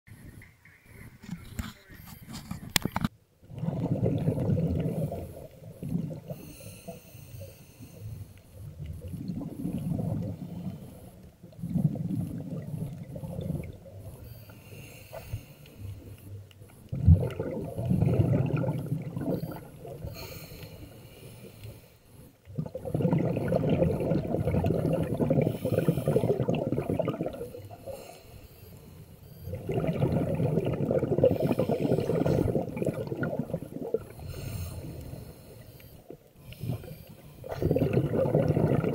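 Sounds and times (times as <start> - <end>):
bubbling exhalations: 3.5 - 7.0, 8.6 - 14.3, 16.8 - 20.8, 22.5 - 28.3, 29.4 - 38.9
diver breathing through regulator: 6.2 - 8.5, 14.1 - 17.2, 18.0 - 22.4, 25.0 - 33.1, 34.0 - 38.9.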